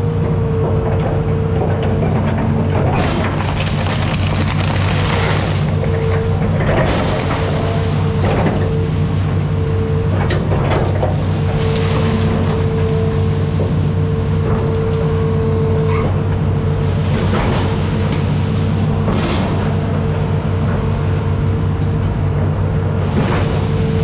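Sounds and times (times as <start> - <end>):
excavator diesel engine running: 0.0 - 24.0
creaks and rattles: 0.8 - 8.6.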